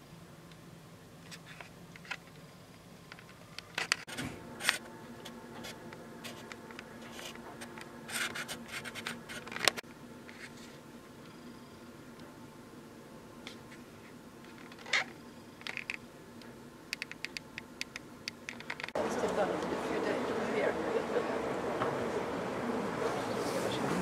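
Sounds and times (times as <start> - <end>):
faint steady hum: 0.0 - 24.0
camera handling scratching and clicks: 5.6 - 10.5, 14.5 - 16.0.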